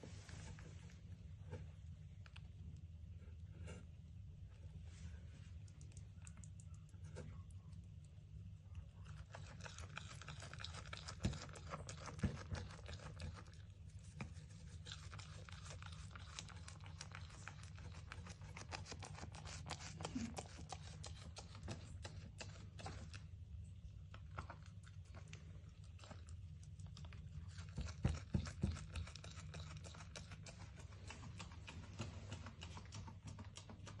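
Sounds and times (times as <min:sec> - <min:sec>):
goat tearing and chewing grass: 0:09.1 - 0:23.3, 0:24.4 - 0:34.0.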